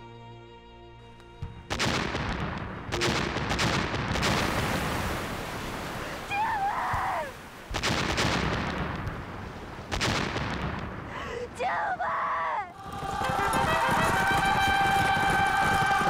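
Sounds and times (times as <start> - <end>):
explosions: 1.6 - 6.0, 7.7 - 11.3
gunfire: 1.7 - 5.1, 7.7 - 9.3, 9.9 - 11.1, 12.9 - 16.0
wavering cry: 11.9 - 16.0.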